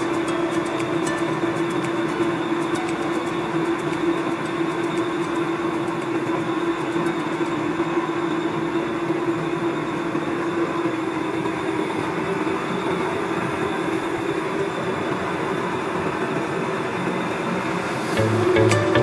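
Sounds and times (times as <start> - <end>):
faint high whine: 0.0 - 19.0
metal lathe cutting: 0.0 - 19.0.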